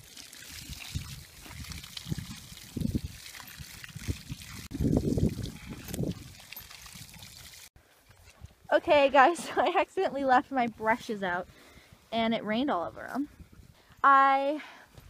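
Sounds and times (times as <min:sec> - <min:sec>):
water from a hose splashing: 0:00.0 - 0:07.7.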